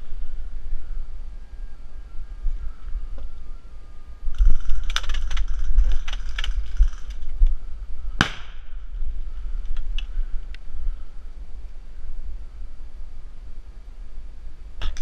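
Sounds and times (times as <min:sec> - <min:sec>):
low microphone rumble: 0:00.0 - 0:15.0
gear clicking and rattling: 0:04.4 - 0:07.5.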